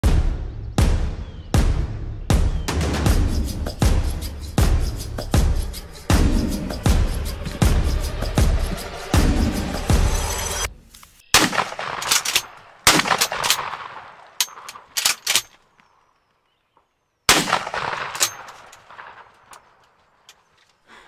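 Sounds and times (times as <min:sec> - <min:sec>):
music: 0:00.0 - 0:10.7
shotgun shots: 0:11.3 - 0:15.4, 0:17.3 - 0:19.8.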